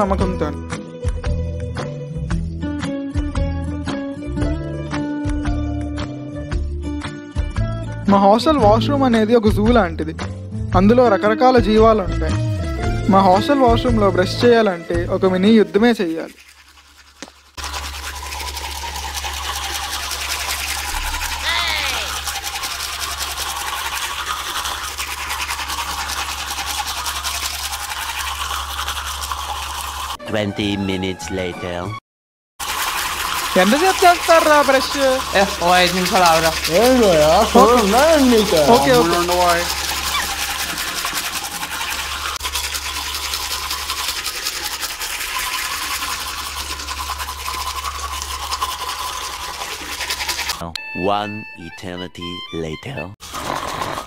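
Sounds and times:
toothbrush scrubbing teeth: 13.4 - 30.2, 32.6 - 50.6, 53.2 - 54.0.

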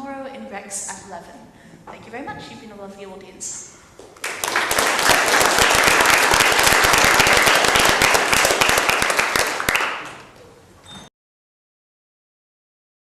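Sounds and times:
audience applauding: 4.2 - 10.4.

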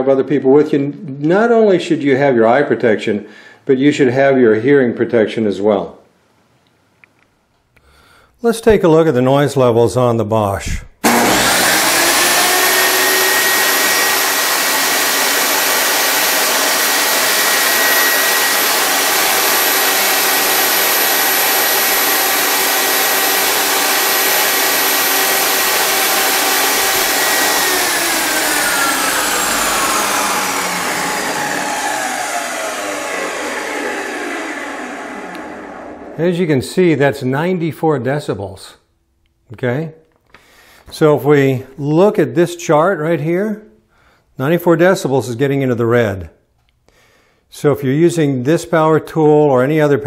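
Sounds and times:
table saw motor whining: 11.0 - 36.2.

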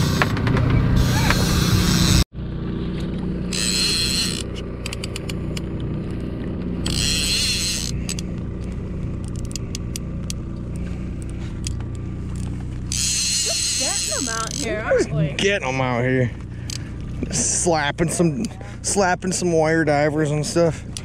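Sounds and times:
outboard motor droning: 0.0 - 21.0
short hissing whirs: 1.0 - 2.2
fishing reel clicking: 3.5 - 5.6, 6.8 - 8.3, 9.2 - 10.4, 12.9 - 14.9.

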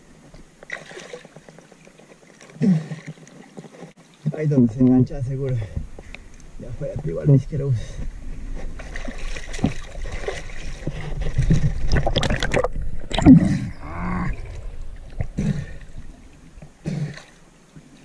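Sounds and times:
water splashing and gurgling: 0.0 - 4.4, 8.5 - 18.0.

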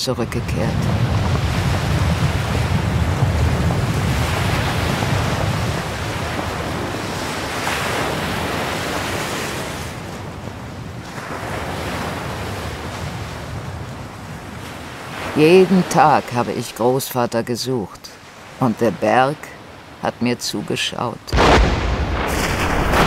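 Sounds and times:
surf washing up a pebble beach: 0.2 - 16.3.

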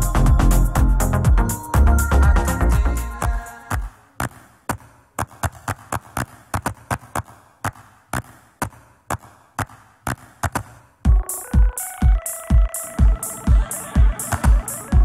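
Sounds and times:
synth chords: 0.0 - 3.2, 11.1 - 15.0
heavy kick drum: 0.0 - 3.9, 11.0 - 15.0
percussive clicks and claps: 3.7 - 10.8.

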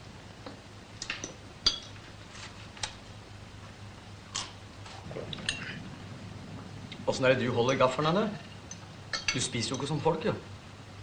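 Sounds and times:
faint steady hum: 0.0 - 11.0
cutlery clinking against plates: 8.7 - 9.9.

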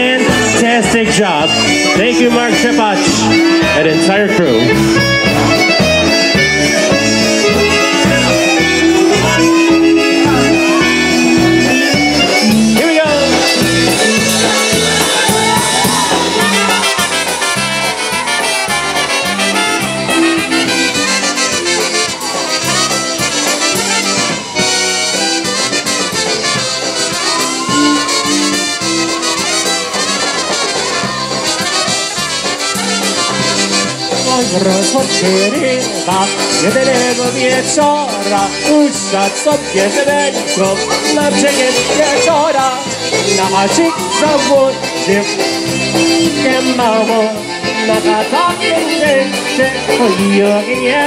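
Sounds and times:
accordion and concertina: 0.0 - 51.0
drums bouncing beat: 0.0 - 51.0
trumpets playing: 0.0 - 51.0.

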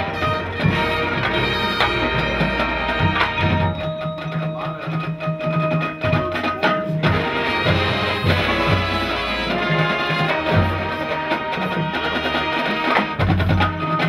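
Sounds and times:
wind chords: 0.0 - 3.9, 7.0 - 13.2
drum and percussion hits: 0.0 - 14.0.

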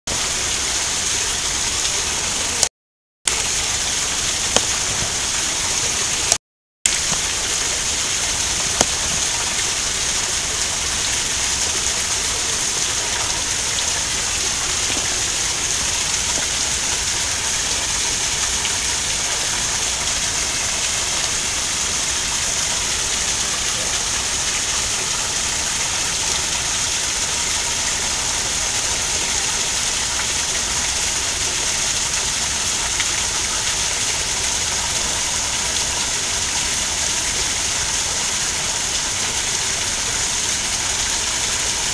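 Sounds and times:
waterfall splashing onto rocks: 0.1 - 2.7, 3.3 - 41.9.

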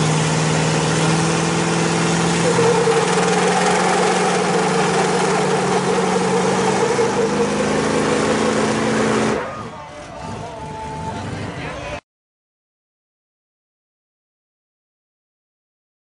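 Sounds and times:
truck engines revving: 0.0 - 12.0.

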